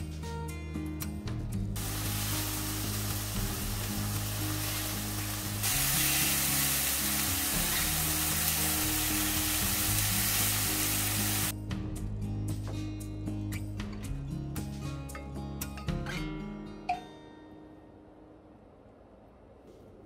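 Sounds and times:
tofu sizzling in frying oil: 1.8 - 11.5.

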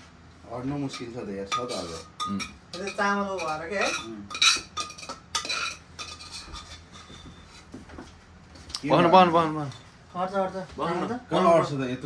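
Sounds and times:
metal utensil scraping a pan: 0.8 - 7.7.

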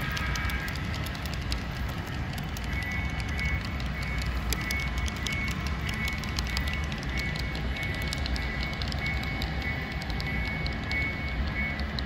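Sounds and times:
faint high whine: 0.0 - 12.0
model train rumbling: 0.0 - 12.0
wheels clicking over rail joints: 0.0 - 12.0.

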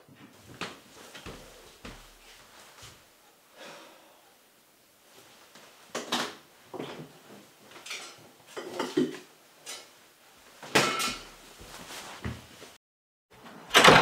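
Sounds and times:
dishes and cutlery clattering: 7.8 - 9.9, 10.7 - 11.3.

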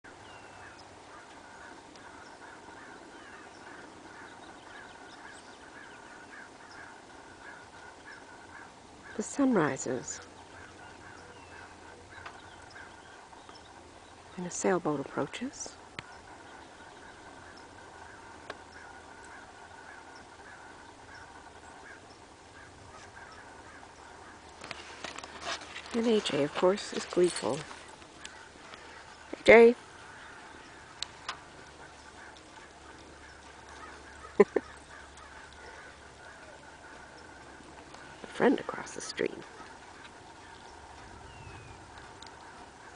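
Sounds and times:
birds chirping: 0.0 - 42.9
outdoor background hiss: 0.0 - 42.9.

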